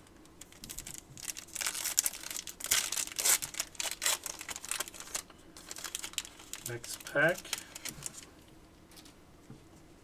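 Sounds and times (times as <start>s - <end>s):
foil wrapper crinkling: 0.4s - 8.3s.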